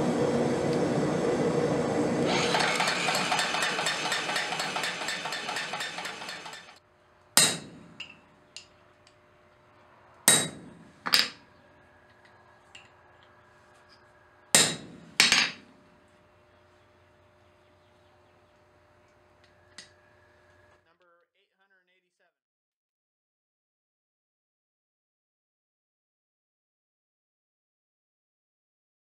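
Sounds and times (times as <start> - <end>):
motor hum: 0.0 - 20.8
power hammer beating steel: 2.3 - 6.8, 7.4 - 8.1, 10.3 - 10.9, 14.5 - 15.5
hand hammer striking steel punch: 7.4 - 8.2, 10.3 - 10.7, 14.6 - 15.4.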